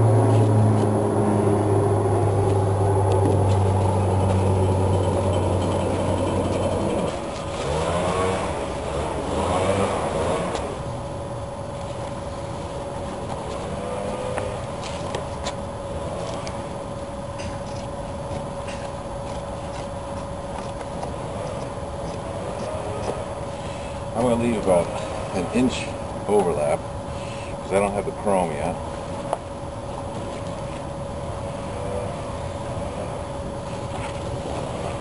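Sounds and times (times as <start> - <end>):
low rumble: 0.0 - 7.6
low engine hum: 0.0 - 35.0.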